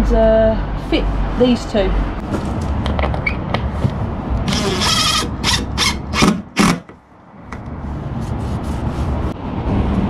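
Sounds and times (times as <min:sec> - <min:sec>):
drill-driver driving screw into wood: 0:04.5 - 0:06.9.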